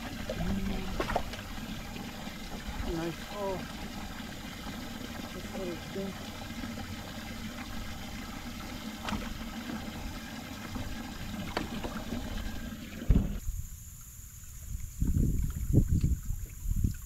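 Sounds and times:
water running and splashing: 0.0 - 13.4
thump: 13.1 - 13.4.

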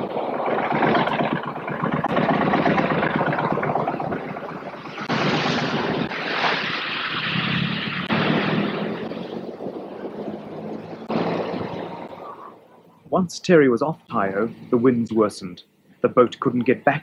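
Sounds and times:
sea rushing: 0.0 - 13.0
wind buffeting microphone: 0.0 - 13.1.

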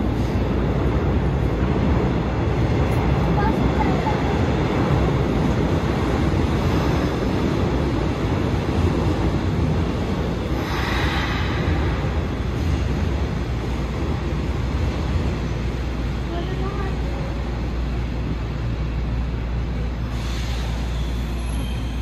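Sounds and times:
train wheels rumbling on track: 0.0 - 22.0
brief rush of hissing: 20.1 - 21.2.

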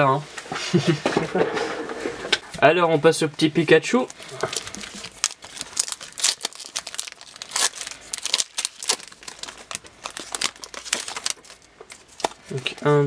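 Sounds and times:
foil wrapper crinkling: 3.9 - 12.5.

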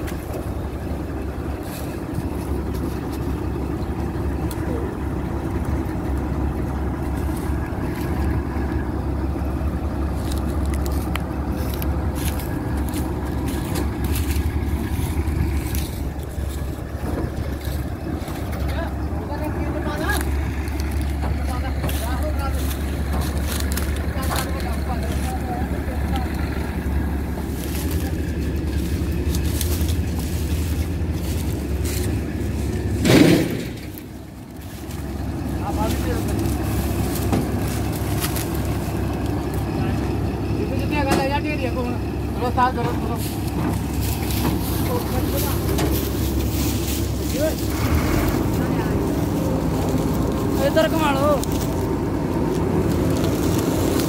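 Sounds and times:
combine harvester engine rumbling: 0.0 - 54.0.

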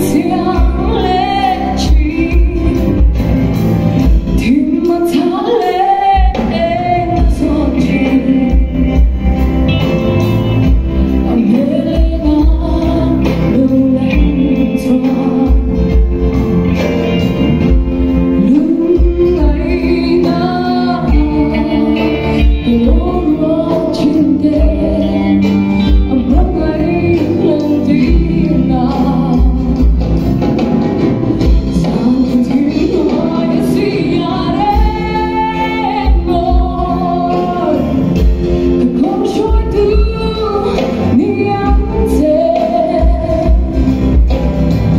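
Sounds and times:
person singing: 0.0 - 10.0, 11.0 - 30.1, 31.4 - 44.8
praise band playing: 0.0 - 44.9.

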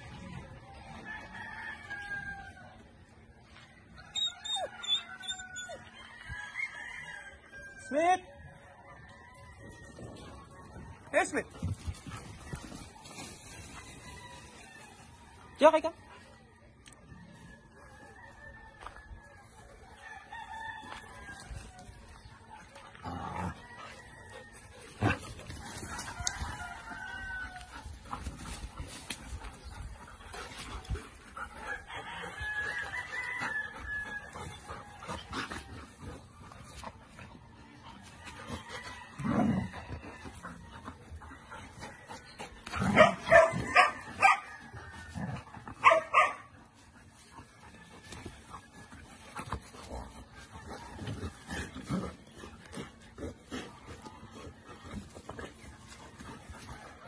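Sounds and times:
roosters crowing: 0.0 - 15.9, 17.2 - 57.0
dog barking: 42.9 - 44.4, 45.8 - 46.5.

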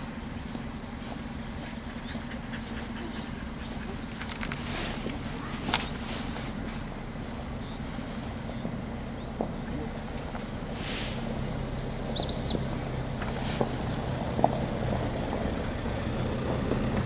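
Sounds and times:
steady low hum: 0.0 - 17.0
dog-training whistle: 12.2 - 12.9.

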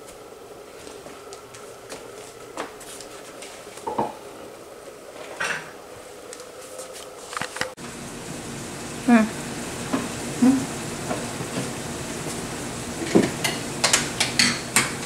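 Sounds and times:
pots and utensils clinking: 13.0 - 15.0.

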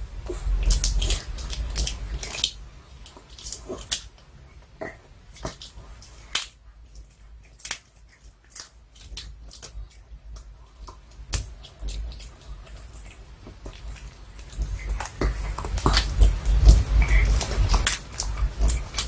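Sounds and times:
dog crunching a hard chew: 10.8 - 19.0.

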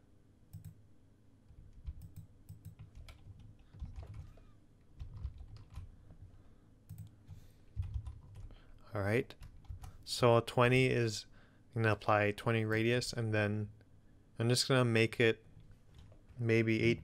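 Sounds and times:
keyboard keys clicking: 1.6 - 5.9, 7.8 - 8.5.

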